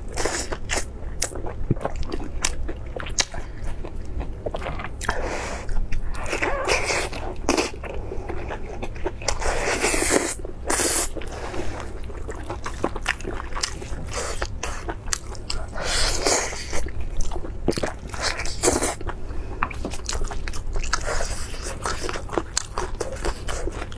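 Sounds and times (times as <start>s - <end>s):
chewing and biting meat: 0.1s - 23.9s.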